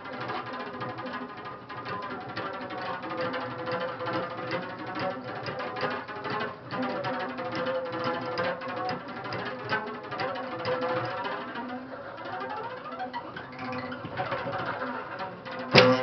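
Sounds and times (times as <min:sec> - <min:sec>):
plucked string notes: 0:00.0 - 0:16.0
sustained bowed tone: 0:11.3 - 0:16.0.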